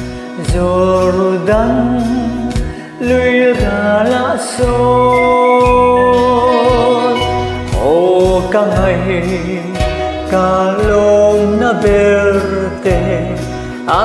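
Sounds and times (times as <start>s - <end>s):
person singing slow song: 0.2s - 14.0s
instrumental backing: 0.4s - 14.0s
low beat: 4.8s - 9.0s.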